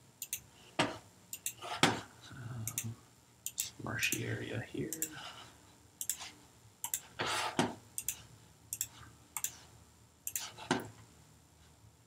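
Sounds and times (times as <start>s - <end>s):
computer mouse clicking: 0.2s - 0.5s, 1.3s - 1.6s, 2.6s - 4.2s, 6.0s - 7.1s, 8.0s - 9.6s, 10.2s - 10.8s.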